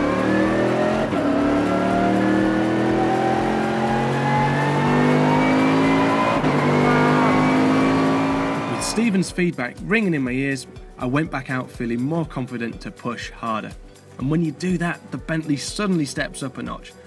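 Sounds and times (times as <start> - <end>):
car engine revving hard: 0.0 - 9.1
gear upshifts: 0.0 - 9.1.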